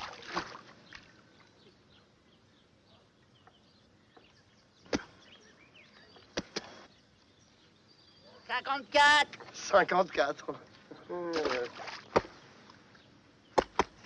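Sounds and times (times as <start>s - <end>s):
faint bird chirps: 0.8s - 9.2s.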